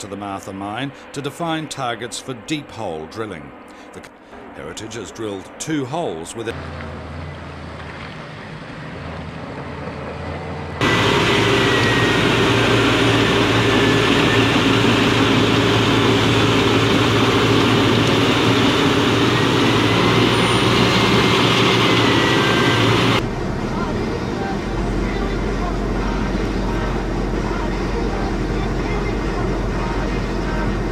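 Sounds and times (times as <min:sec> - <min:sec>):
heavy diesel engines running: 0:00.0 - 0:30.9
faint high whine: 0:10.8 - 0:30.9.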